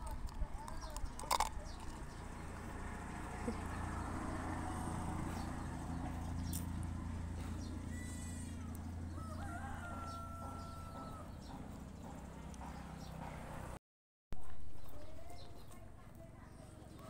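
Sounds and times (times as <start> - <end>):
rooster crowing: 9.1 - 11.4.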